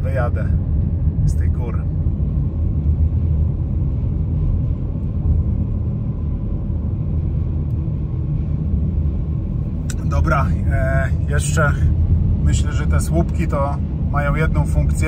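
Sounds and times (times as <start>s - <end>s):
road and engine rumble in car cabin: 0.0s - 15.0s.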